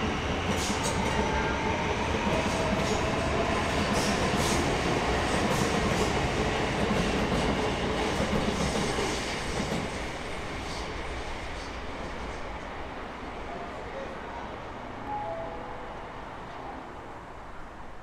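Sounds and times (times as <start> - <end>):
electric train running on tracks: 0.0 - 13.9.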